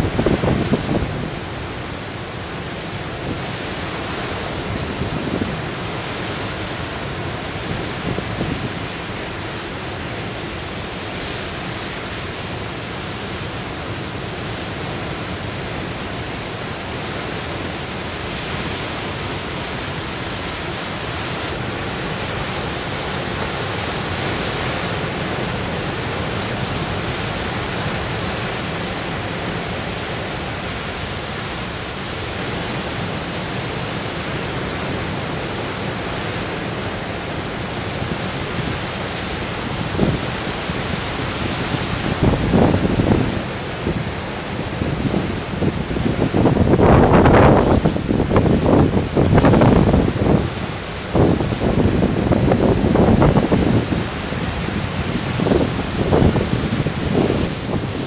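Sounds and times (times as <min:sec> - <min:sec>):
storm waves breaking: 0:00.0 - 0:58.0.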